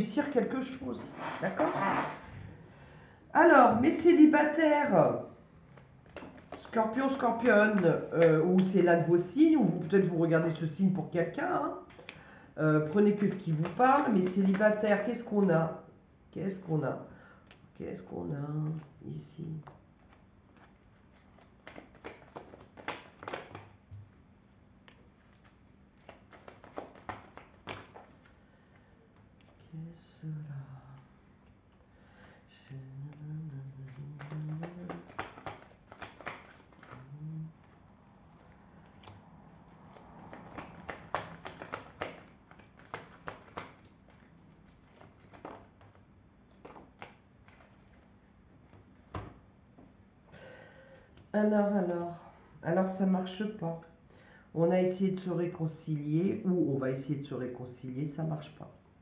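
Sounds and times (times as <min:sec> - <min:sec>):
cards tapping and flicking: 0:05.7 - 0:08.9, 0:11.9 - 0:15.0, 0:19.6 - 0:24.1, 0:24.8 - 0:29.6, 0:33.1 - 0:49.4
cards slapped and slid on table: 0:24.8 - 0:28.4, 0:40.3 - 0:44.2.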